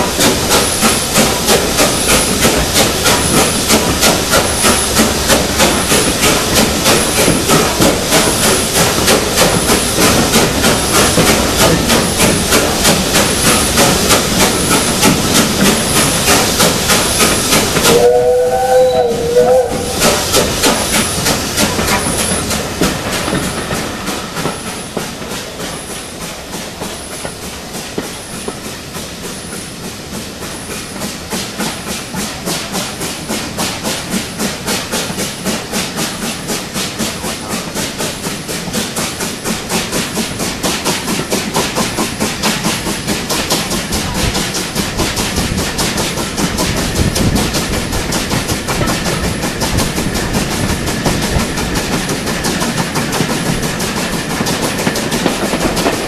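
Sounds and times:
steam hissing: 0:00.0 - 0:56.0
steam locomotive beats: 0:00.0 - 0:56.0
train wheels rolling: 0:00.0 - 0:56.0
train whistle: 0:17.9 - 0:20.1.

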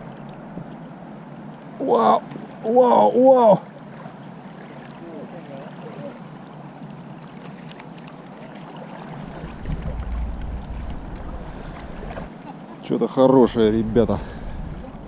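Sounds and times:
flowing river water: 0:00.0 - 0:15.0
wind rumble on microphone: 0:09.2 - 0:12.3, 0:13.5 - 0:15.0.

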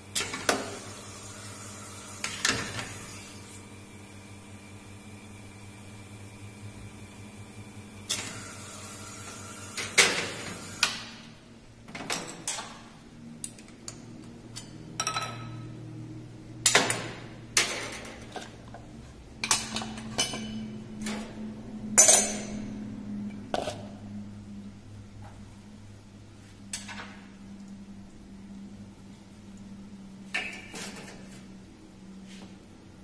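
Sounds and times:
low steady hum: 0:11.1 - 0:33.0.

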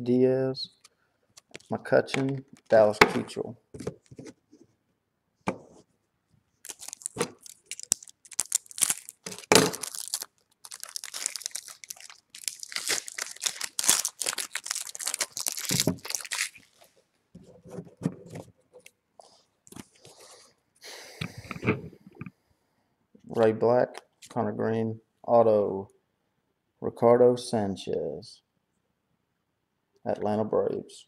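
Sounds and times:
cards rustling: 0:06.6 - 0:16.9
foil wrapper tearing and crinkling: 0:06.6 - 0:16.9.

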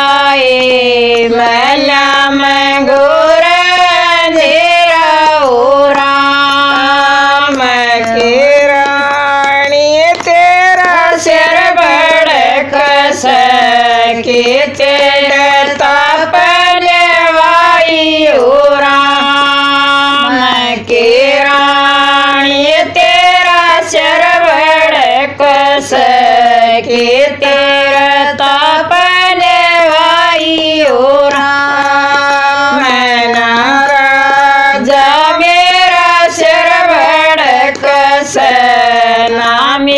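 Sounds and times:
women singing devotional song: 0:00.0 - 0:39.9.

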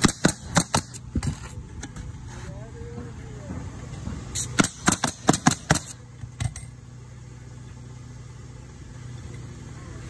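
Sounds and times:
nail gun shots: 0:00.0 - 0:01.0, 0:04.4 - 0:06.0
low motor hum: 0:00.0 - 0:10.0.

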